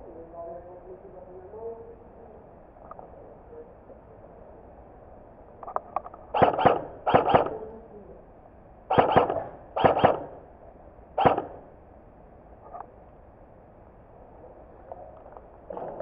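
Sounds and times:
airsoft rifle shots: 6.3 - 7.7, 8.9 - 10.5, 11.2 - 11.7.

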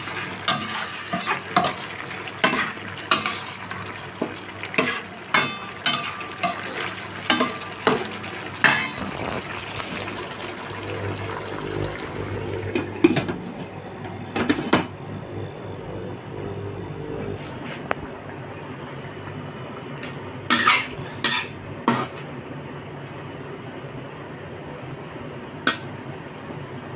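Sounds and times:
metal ladle scraping a wok: 0.1 - 1.4.

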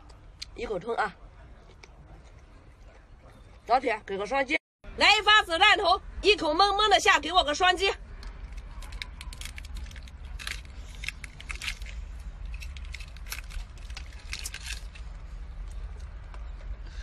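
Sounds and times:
steady low rumble: 4.9 - 17.0
crunching shellfish shells: 8.2 - 16.2.

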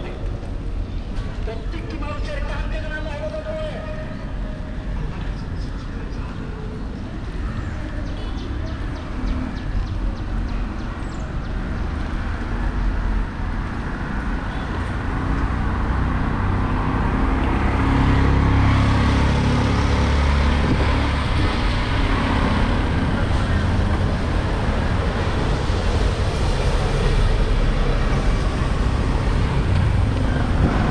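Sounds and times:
wind buffeting microphone: 19.1 - 30.9.

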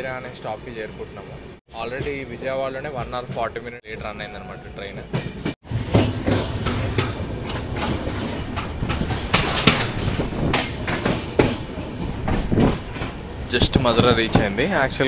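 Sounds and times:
train wheels clattering over rail joints: 5.1 - 15.0.

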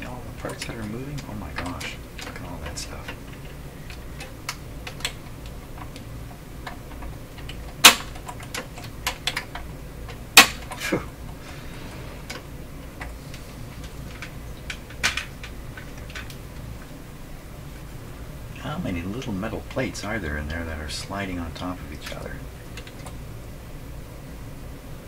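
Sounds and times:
tape recorder mechanism clacking: 0.0 - 16.9, 21.5 - 23.2.

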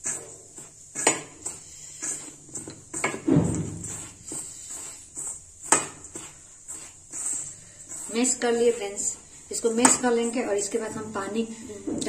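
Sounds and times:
fingers scraping through flour: 0.0 - 11.4
thump: 3.2 - 3.9.

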